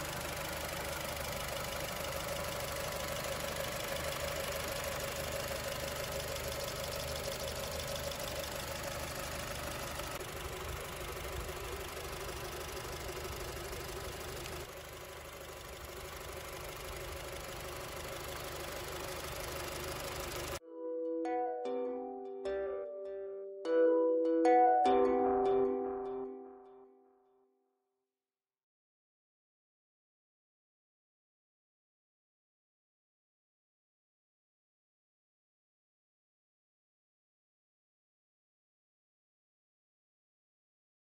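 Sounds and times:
car engine idling: 0:00.0 - 0:20.6.

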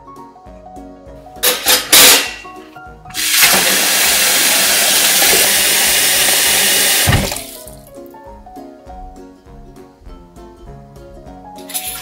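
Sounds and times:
metal utensils clattering: 0:01.4 - 0:02.6, 0:11.6 - 0:12.0
tap water running into sink: 0:03.1 - 0:07.9, 0:11.7 - 0:12.0.

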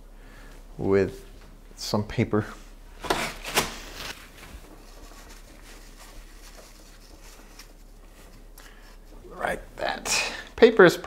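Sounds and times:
paper crinkling and rustling: 0:03.0 - 0:09.1.

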